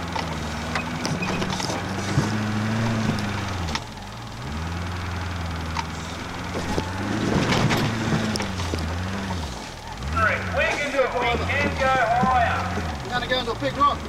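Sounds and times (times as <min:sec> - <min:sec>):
knocks and clatter: 0:00.0 - 0:04.7, 0:05.5 - 0:14.0
truck engine revving: 0:00.0 - 0:14.0.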